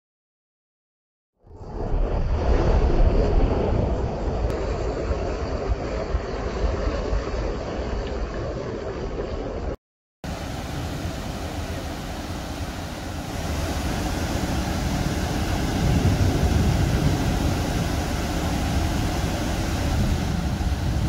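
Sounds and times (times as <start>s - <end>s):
water rushing over rocks: 10.3s - 21.0s.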